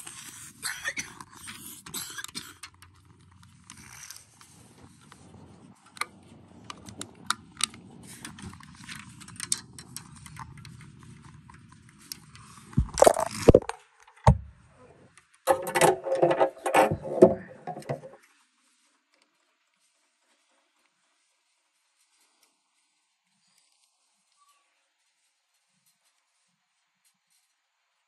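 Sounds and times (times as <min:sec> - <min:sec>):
rough rubbing and scraping: 0:00.0 - 0:13.8, 0:15.5 - 0:18.2
handling noise near phone: 0:02.8 - 0:14.6, 0:15.5 - 0:18.2
heavy knocks: 0:15.5 - 0:18.2.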